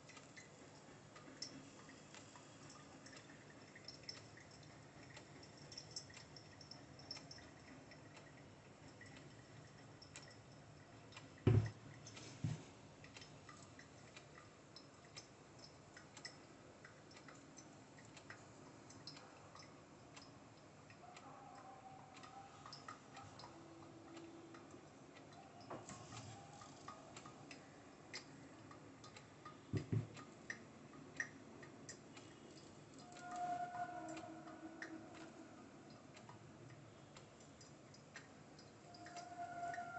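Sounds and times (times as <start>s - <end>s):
kettle knocking on wooden table: 11.5s - 11.7s, 29.8s - 30.1s.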